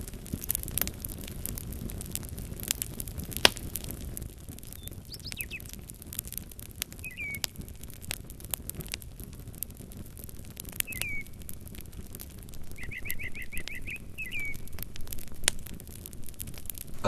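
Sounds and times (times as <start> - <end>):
wood fire crackling and popping: 0.0 - 17.0
small bird chirping: 4.6 - 5.8, 7.0 - 7.6, 10.8 - 11.4, 12.8 - 14.7
bird whistled call: 4.7 - 5.7, 7.0 - 7.5, 10.9 - 11.4, 12.8 - 14.7.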